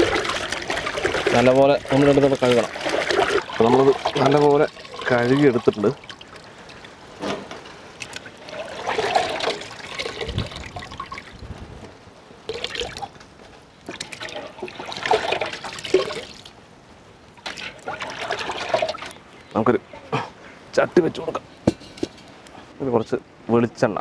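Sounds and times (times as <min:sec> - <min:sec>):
hands sloshing in water: 0:00.0 - 0:06.8
water trickling into pot: 0:00.0 - 0:11.4, 0:12.4 - 0:16.6, 0:17.3 - 0:19.2.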